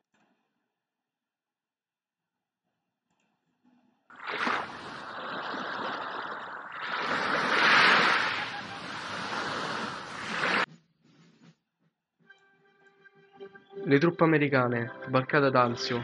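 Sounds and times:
sea waves breaking: 4.1s - 10.7s.

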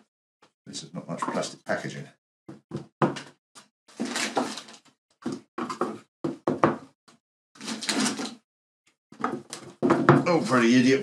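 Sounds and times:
plastic parts knocking and scraping: 2.5s - 8.4s, 9.1s - 10.8s.

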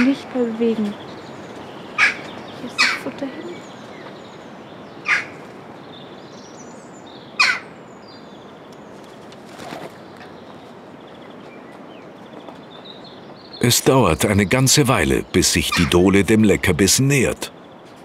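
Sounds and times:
jackdaws calling: 0.8s - 5.5s, 7.3s - 7.8s, 12.9s - 17.4s.

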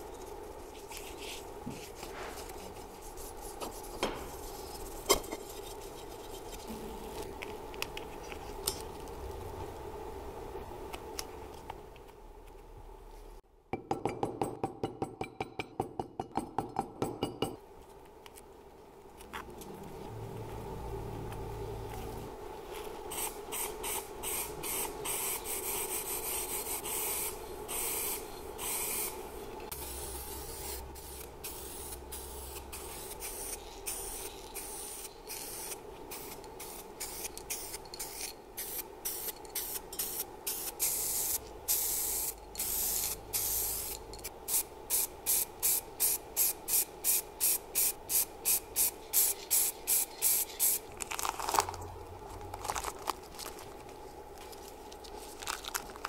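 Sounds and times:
spray paint hissing: 23.1s - 50.9s.

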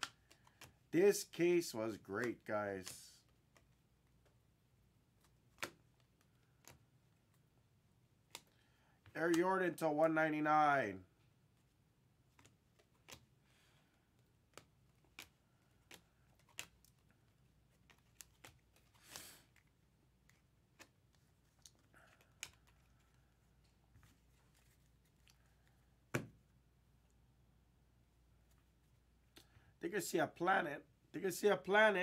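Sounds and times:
trading cards clicking: 0.0s - 1.4s, 9.3s - 9.5s, 14.1s - 23.2s.

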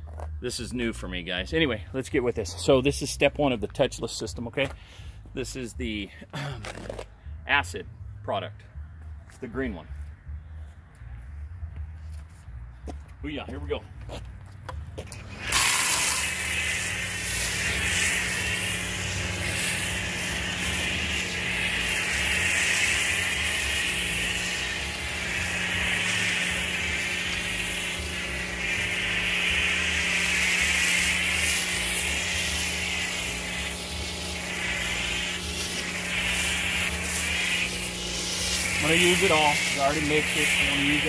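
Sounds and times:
pressure washer motor hum: 15.0s - 41.0s
foam spray hissing: 15.1s - 41.0s.

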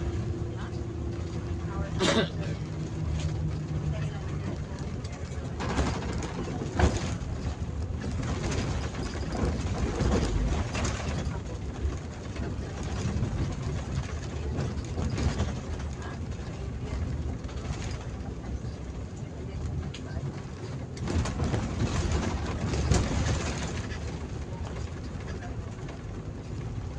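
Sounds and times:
bus engine running: 0.0s - 26.9s
road noise: 0.0s - 26.9s
clicks and rattles in cab: 3.0s - 19.0s.

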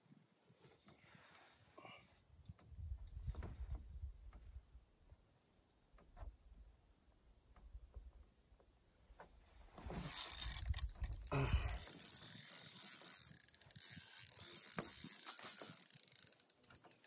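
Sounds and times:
fishing reel clicking whir: 10.0s - 17.0s.

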